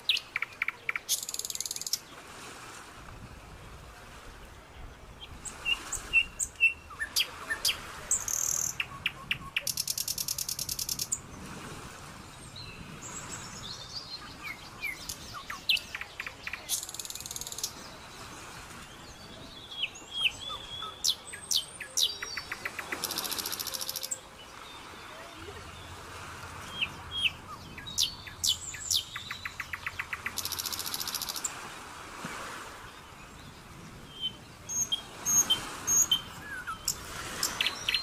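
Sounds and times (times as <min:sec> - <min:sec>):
birds chirping and whistling: 0:19.6 - 0:24.2, 0:26.7 - 0:31.4, 0:34.1 - 0:38.0.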